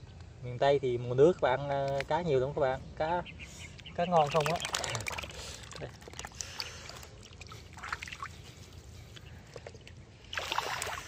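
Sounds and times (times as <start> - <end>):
water dripping and sloshing: 4.0 - 11.0
water splashing: 4.0 - 11.0.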